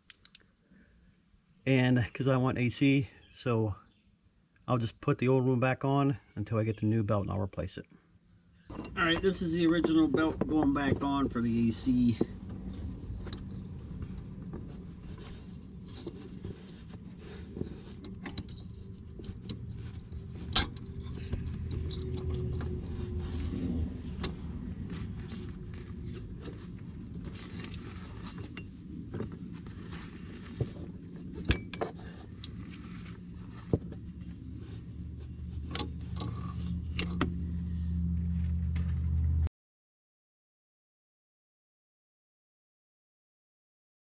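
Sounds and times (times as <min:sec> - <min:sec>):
steady low hum: 0:08.2 - 0:39.5.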